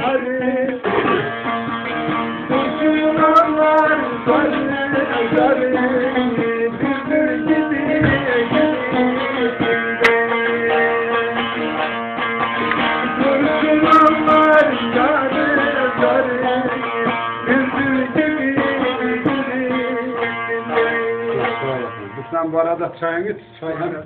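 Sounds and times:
plucked long-necked lute: 0.0 - 24.0.

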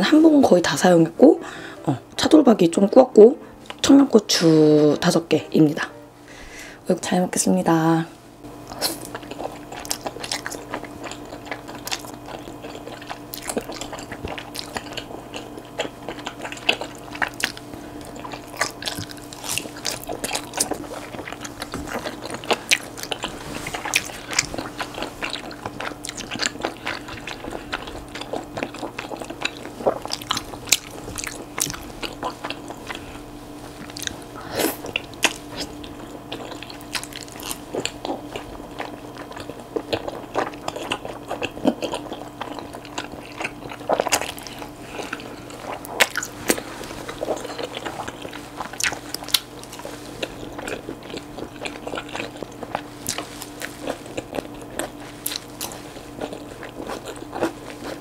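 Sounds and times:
faint steady hum: 0.0 - 58.0
chewing: 8.7 - 58.0.

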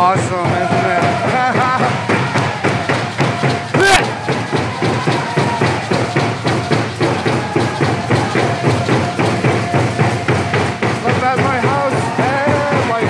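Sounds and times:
hand drums beating: 0.0 - 13.0.

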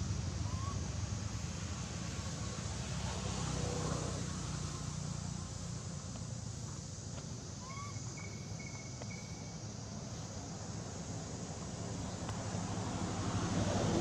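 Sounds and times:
faint high chirp: 7.6 - 9.5.

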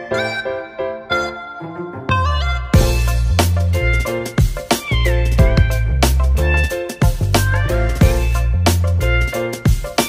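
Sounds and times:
background music with drums and bass: 2.1 - 10.0.

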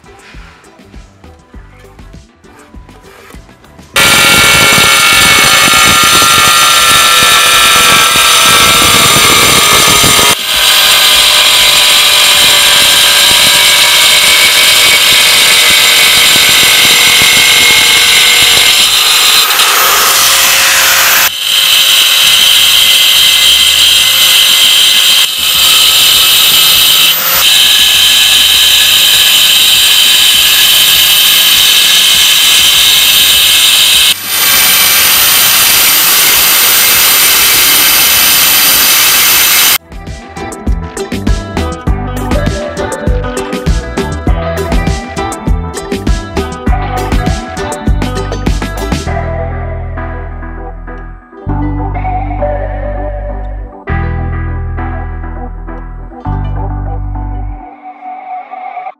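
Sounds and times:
angle grinder cutting tile: 4.0 - 39.8.

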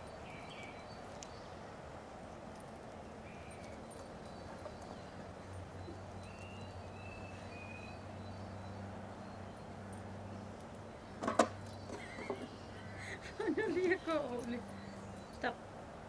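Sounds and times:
faint bird chirps: 3.2 - 10.4.

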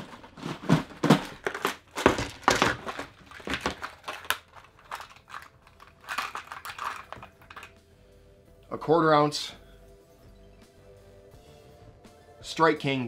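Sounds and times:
plastic tackle box rattling: 0.0 - 7.7
plastic bag crinkling: 0.0 - 7.8.

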